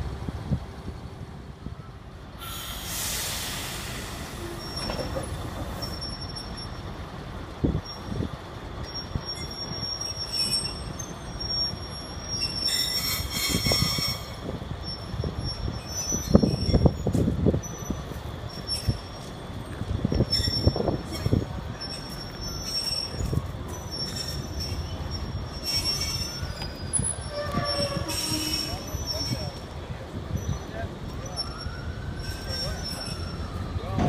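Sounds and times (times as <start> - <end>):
hiss: 2.4 - 4.7
metal squeals: 3.4 - 6.9, 8.8 - 19.3, 20.1 - 29.6, 30.3 - 34.0.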